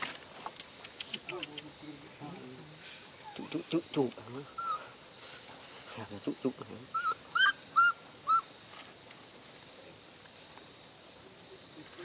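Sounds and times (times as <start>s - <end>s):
high insect buzz: 0.0s - 12.0s
baby monkey coo calls: 4.5s - 5.0s, 6.9s - 8.5s.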